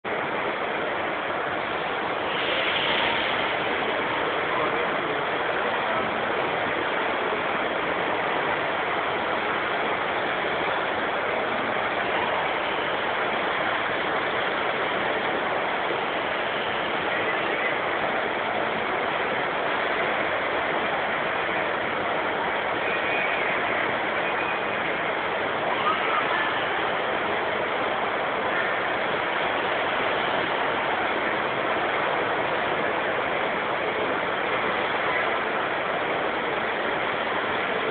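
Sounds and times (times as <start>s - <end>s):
busy exhibition hall din: 0.0s - 37.9s.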